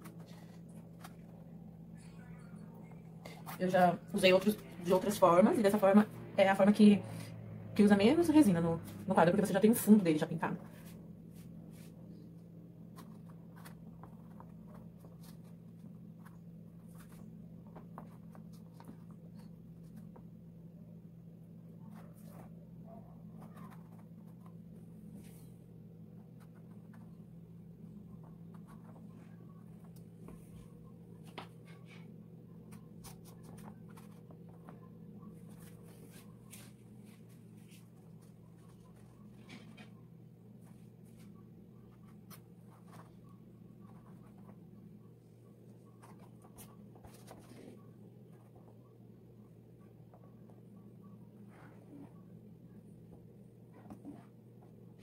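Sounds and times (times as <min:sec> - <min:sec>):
steady low hum: 0:00.0 - 0:55.0.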